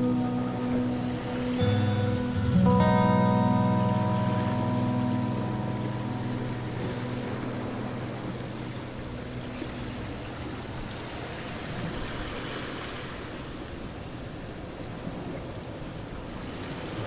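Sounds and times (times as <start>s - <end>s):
background music: 0.0s - 11.3s.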